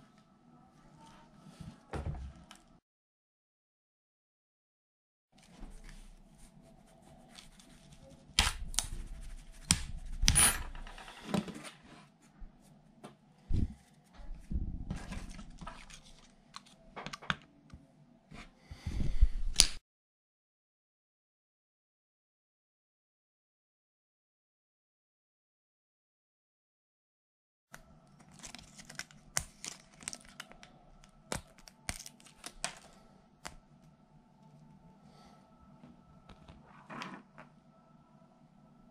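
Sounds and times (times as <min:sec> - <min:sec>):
plastic snapping and crackling: 0:28.2 - 0:33.6.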